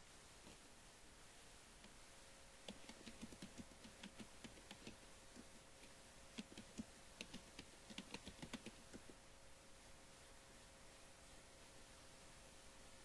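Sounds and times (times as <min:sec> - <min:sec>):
faint keyboard typing: 0:02.6 - 0:09.2.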